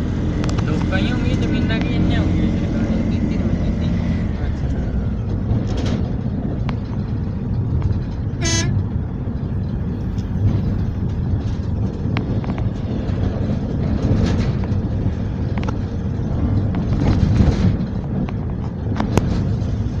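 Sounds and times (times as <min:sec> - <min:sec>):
vehicle rumbling along road: 0:00.0 - 0:20.0
short horn toot: 0:08.4 - 0:08.8.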